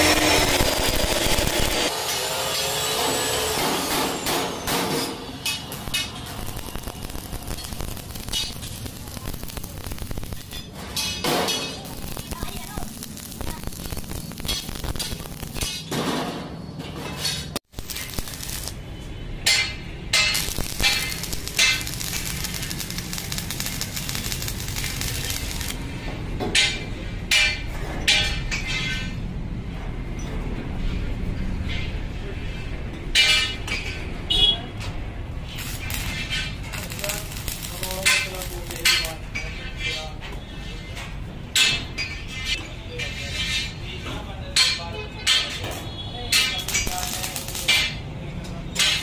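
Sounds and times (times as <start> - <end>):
welding arc crackling: 0.0 - 15.9, 17.6 - 25.9, 35.4 - 39.5, 46.3 - 48.2.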